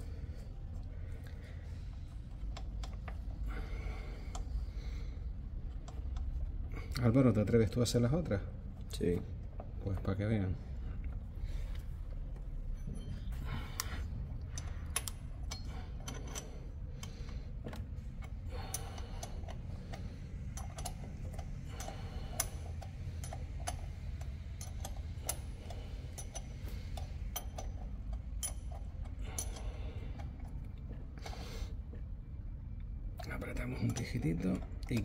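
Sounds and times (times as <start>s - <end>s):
steady low hum: 0.0s - 35.0s
light metallic clicks and taps: 13.8s - 31.4s.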